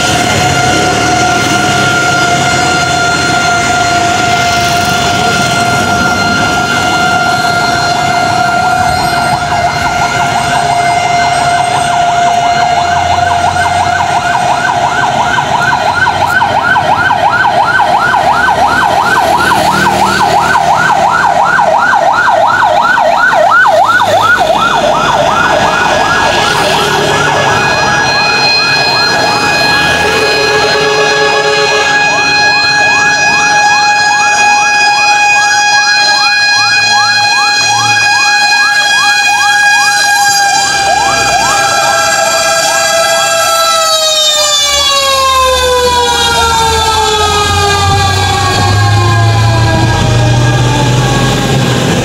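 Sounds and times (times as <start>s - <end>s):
fire truck siren: 0.0s - 52.0s.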